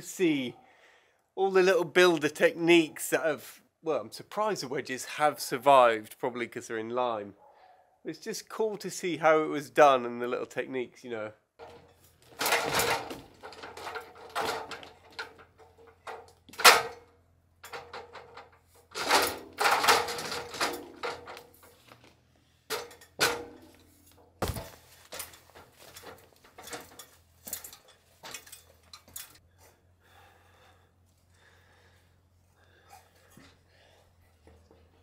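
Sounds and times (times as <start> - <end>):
metal ladder clanking and rattling: 11.6 - 29.7, 32.8 - 35.0
light taps on ladder rungs: 22.7 - 29.8.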